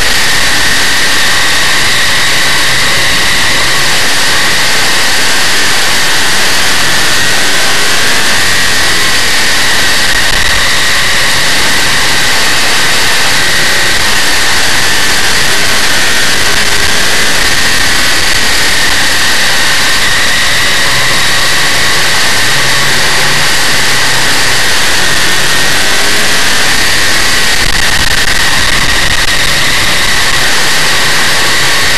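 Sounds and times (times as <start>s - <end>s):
race car engine running hard: 0.0s - 31.9s.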